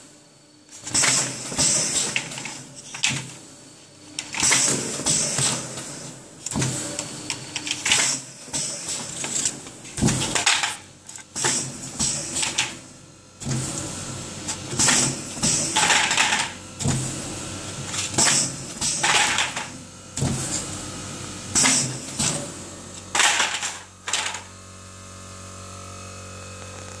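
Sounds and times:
machine humming: 0:00.2 - 0:27.0
plastic trays clattering: 0:23.2 - 0:24.4.

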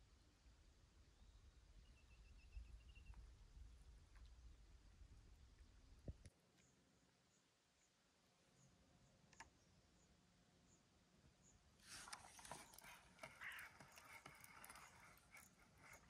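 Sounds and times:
faint crackly rustling: 0:11.8 - 0:16.0.

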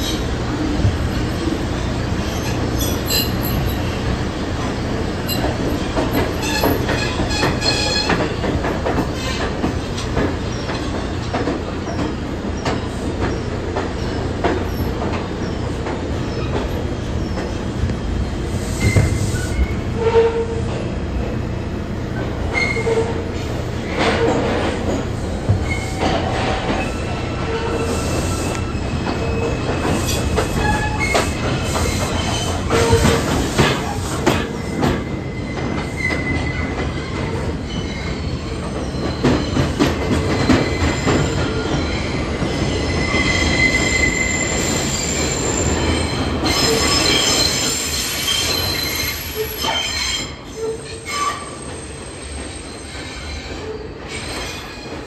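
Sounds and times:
rail joint clicks: 0:00.0 - 0:55.0
train rumble: 0:00.0 - 0:55.0
train wheels squealing: 0:02.3 - 0:03.9, 0:05.3 - 0:08.3, 0:25.6 - 0:55.0.

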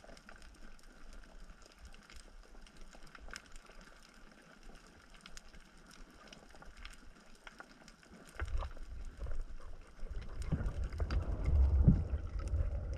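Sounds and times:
faint crackling clicks: 0:00.0 - 0:12.9
low rumbling water noise: 0:06.0 - 0:12.9.

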